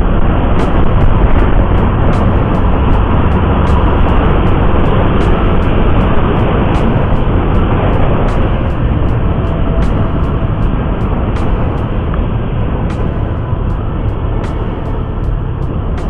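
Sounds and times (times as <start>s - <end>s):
wind over microphone: 0.0s - 16.0s.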